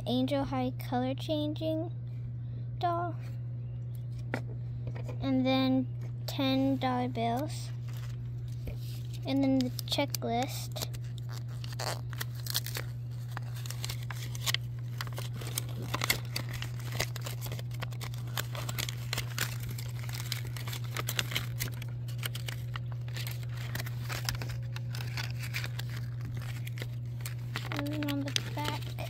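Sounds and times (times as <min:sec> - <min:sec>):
steady low hum: 0:00.0 - 0:29.0
paper rustling and crinkling: 0:07.2 - 0:29.0.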